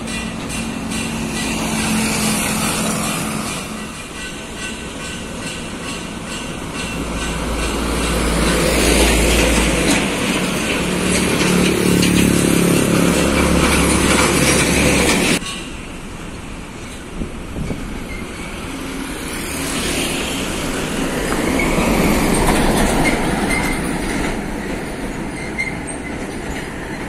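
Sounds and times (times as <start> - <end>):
engine drone of passing vehicles: 7.0 - 15.4, 18.5 - 24.8.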